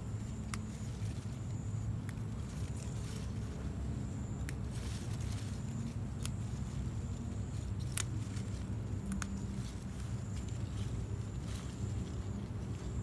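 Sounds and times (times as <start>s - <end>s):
leaves rustling: 0.0s - 13.0s
low outdoor rumble: 0.0s - 13.0s
plant stems snapping: 2.0s - 2.9s, 4.4s - 4.8s, 5.7s - 6.5s, 7.6s - 11.0s.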